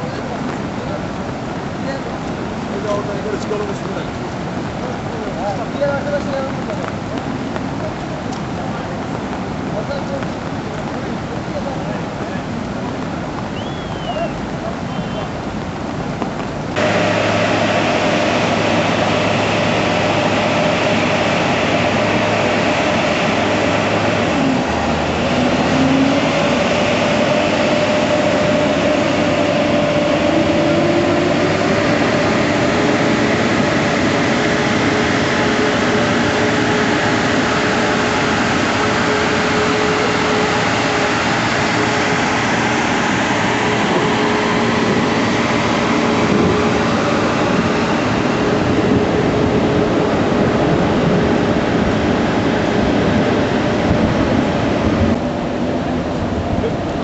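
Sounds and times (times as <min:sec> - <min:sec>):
loud rushing water: 0:00.0 - 0:57.0
diesel engine running: 0:09.3 - 0:57.0.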